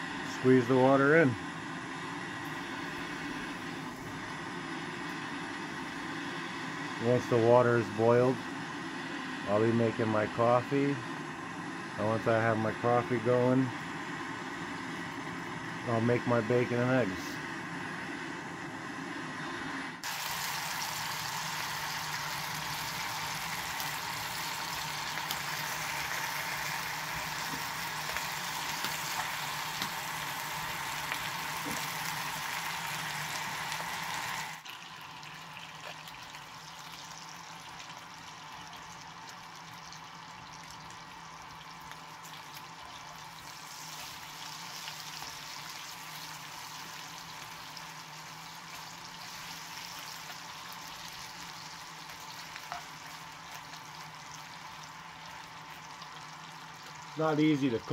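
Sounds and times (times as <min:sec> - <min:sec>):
bacon sizzling in a pan: 0:20.0 - 0:57.9.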